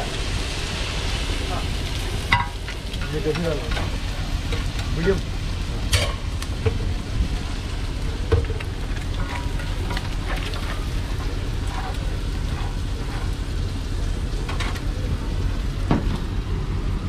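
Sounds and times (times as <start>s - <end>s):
eggs sizzling in a metal pan: 0.0s - 16.8s
low steady rumble: 0.0s - 17.0s
metal spatula scraping a pan: 8.9s - 13.4s.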